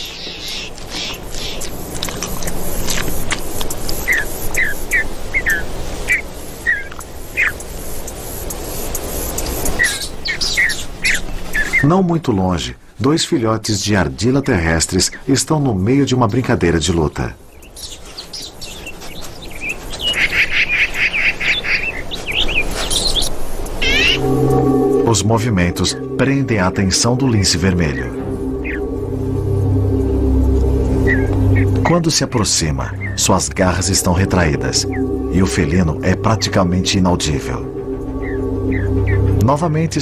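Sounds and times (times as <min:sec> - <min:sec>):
animal chirping calls: 0:00.0 - 0:01.7, 0:19.5 - 0:24.2
high-pitched animal chirping: 0:23.8 - 0:24.2.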